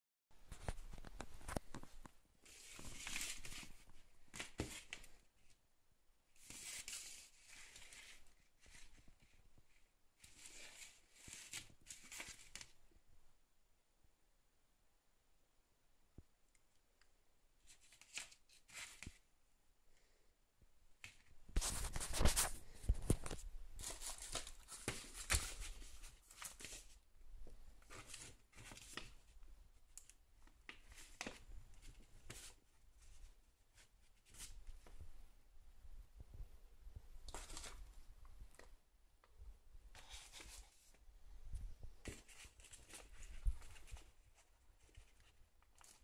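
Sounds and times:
cables rustling on paper: 0:00.5 - 0:05.2, 0:06.4 - 0:12.8, 0:21.0 - 0:27.0, 0:37.3 - 0:38.7, 0:39.9 - 0:41.0, 0:42.0 - 0:46.0.

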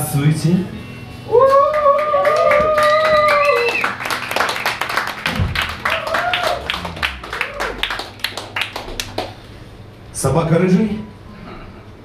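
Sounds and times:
voices cheering: 0:01.3 - 0:08.6
audience clapping: 0:01.7 - 0:09.7.

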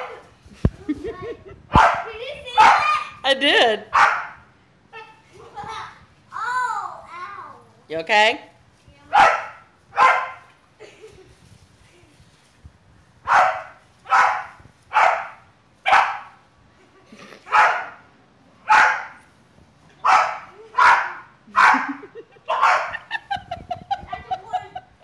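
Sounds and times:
dog barking: 0:01.8 - 0:02.9, 0:03.9 - 0:04.4, 0:09.1 - 0:10.5, 0:13.3 - 0:16.4, 0:17.5 - 0:18.0, 0:18.6 - 0:19.2, 0:20.0 - 0:23.1.

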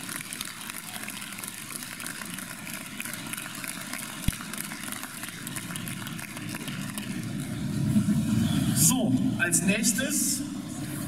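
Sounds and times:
small clicks and claps: 0:00.0 - 0:07.5
crowd din in large hall: 0:00.0 - 0:11.0.

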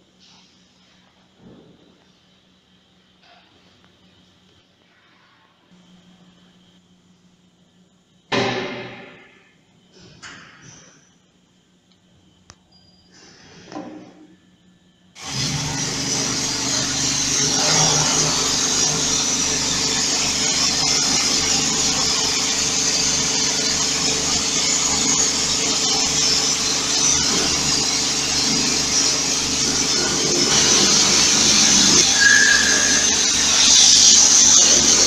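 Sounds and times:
pressure washer motor hum: 0:15.2 - 0:35.0
water spray hissing on metal: 0:30.0 - 0:35.0.

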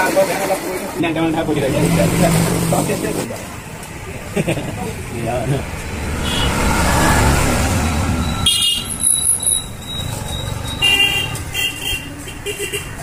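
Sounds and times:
auto-rickshaw engine rumble: 0:00.0 - 0:13.0
street sound: 0:00.0 - 0:13.0
high-pitched ringing tones: 0:08.1 - 0:10.8.

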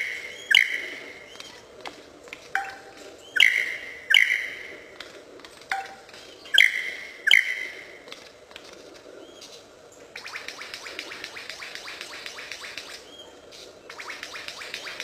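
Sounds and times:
bird whistled notes: 0:00.0 - 0:01.5, 0:02.6 - 0:04.7, 0:06.5 - 0:07.8
rapid falling bird notes: 0:00.0 - 0:15.0.

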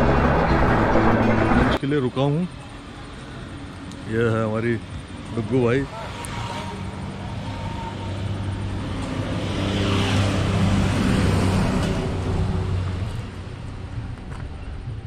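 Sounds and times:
vehicle passing: 0:00.0 - 0:01.8, 0:05.4 - 0:13.2.

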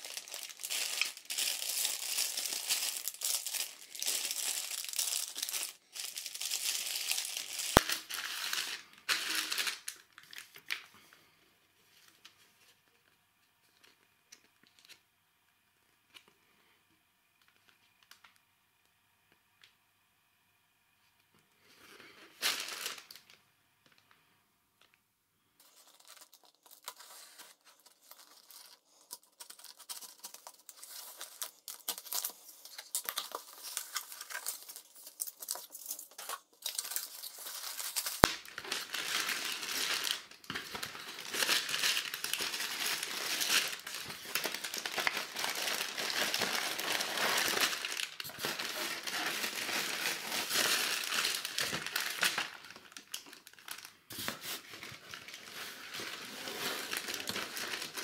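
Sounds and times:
plastic bags rustling: 0:00.0 - 0:10.9, 0:22.0 - 0:24.1, 0:25.6 - 0:58.0
plastic wrapping crinkling and tearing: 0:00.0 - 0:10.9, 0:22.0 - 0:24.2, 0:25.6 - 0:58.0.

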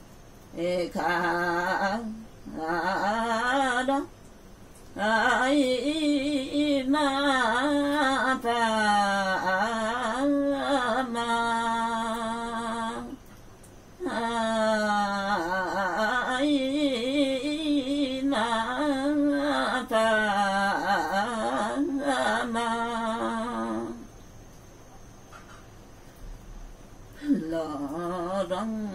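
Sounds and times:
woman singing solo: 0:14.0 - 0:24.1, 0:27.2 - 0:28.9.

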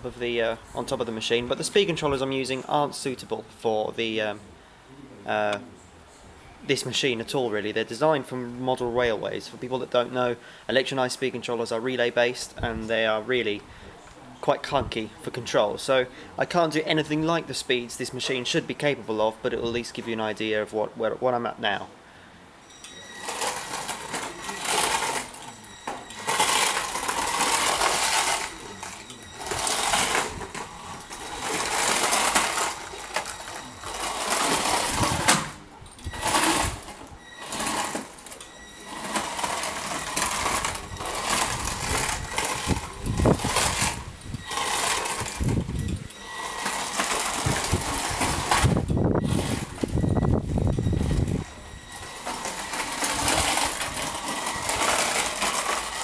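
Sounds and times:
small electric motors whining: 0:22.6 - 0:56.0.

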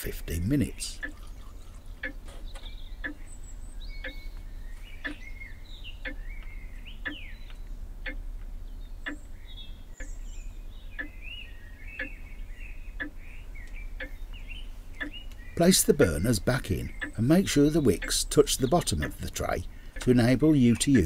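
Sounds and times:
birds chirping: 0:00.0 - 0:21.0
steady low hum: 0:00.0 - 0:21.0
sharp ticks: 0:00.9 - 0:03.3, 0:04.0 - 0:05.3, 0:06.0 - 0:09.4, 0:11.0 - 0:11.2, 0:12.0 - 0:12.2, 0:13.0 - 0:21.0.

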